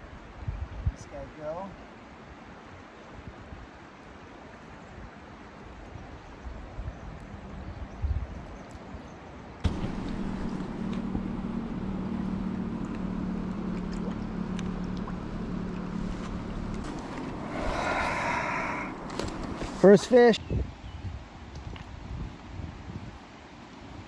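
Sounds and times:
river water flowing: 0:01.0 - 0:20.4, 0:23.2 - 0:24.0
steady low hum: 0:09.6 - 0:20.3.

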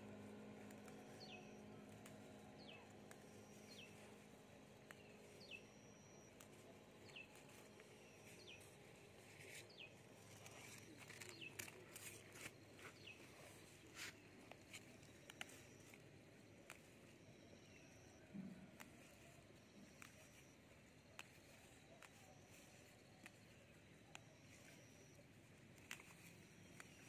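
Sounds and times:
plants rustling and snapping: 0:00.2 - 0:16.0, 0:25.7 - 0:27.0.

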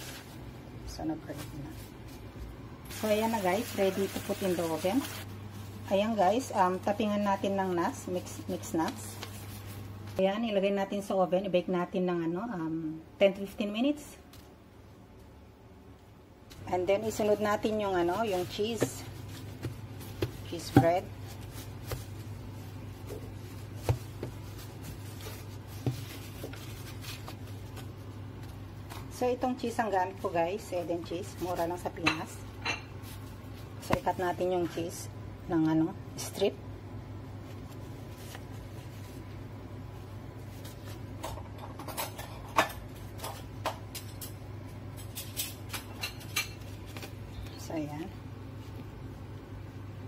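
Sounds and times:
steady low hum: 0:00.0 - 0:50.0
rolling pin rubbing on dough: 0:17.2 - 0:28.6.

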